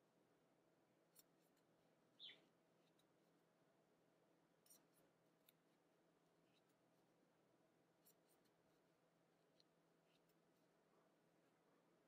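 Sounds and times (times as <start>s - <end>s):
crochet hook ticks: 4.6s - 5.6s, 9.5s - 10.5s.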